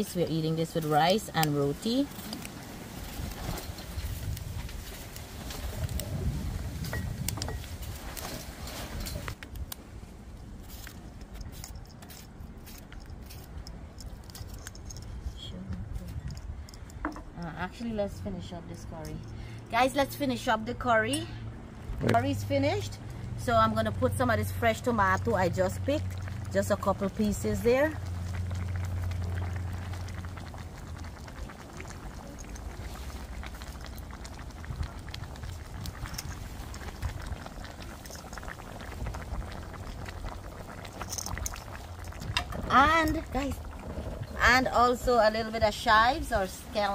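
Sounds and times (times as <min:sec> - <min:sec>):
low rumble: 0:21.4 - 0:45.7
curry bubbling in a frying pan: 0:24.5 - 0:46.9.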